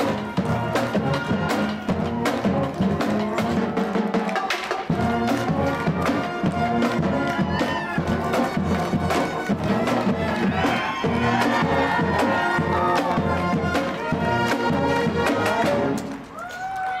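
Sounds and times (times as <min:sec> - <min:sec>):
bass drum beat: 0:00.0 - 0:16.0
brass horns: 0:00.0 - 0:16.3
saxophones: 0:04.9 - 0:16.0.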